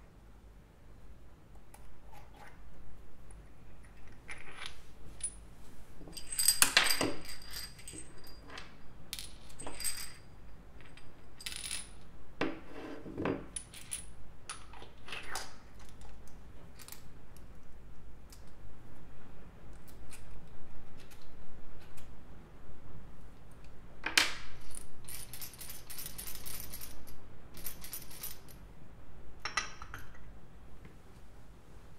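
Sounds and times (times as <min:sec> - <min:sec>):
metal parts clinking: 0:06.1 - 0:12.0, 0:24.5 - 0:28.6.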